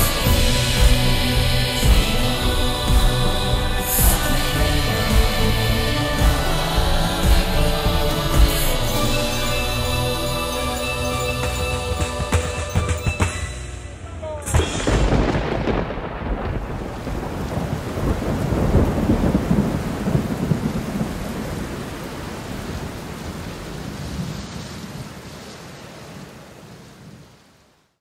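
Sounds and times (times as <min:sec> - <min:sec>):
rain hissing: 0:00.0 - 0:12.3, 0:14.5 - 0:27.9
thunder rumbling: 0:14.4 - 0:25.4.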